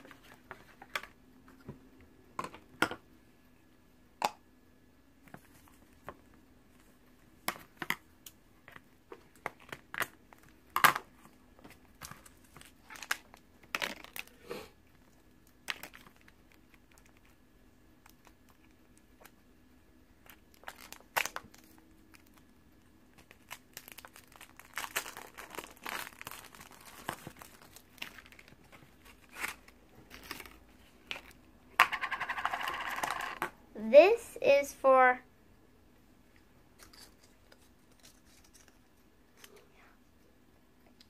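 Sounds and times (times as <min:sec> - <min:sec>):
plastic bag crinkling: 0:20.2 - 0:22.4, 0:23.1 - 0:31.3.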